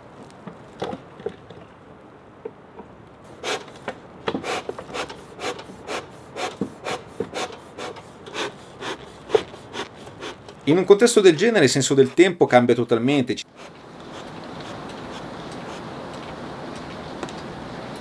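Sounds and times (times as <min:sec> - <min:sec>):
tool scraping wood: 0:03.3 - 0:10.7, 0:11.4 - 0:12.3, 0:13.4 - 0:15.9.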